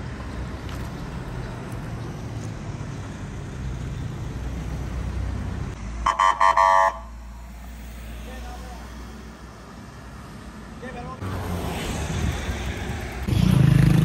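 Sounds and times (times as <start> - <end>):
highway traffic rumble: 0.0 - 14.0
vehicle horn tooting: 6.1 - 7.1.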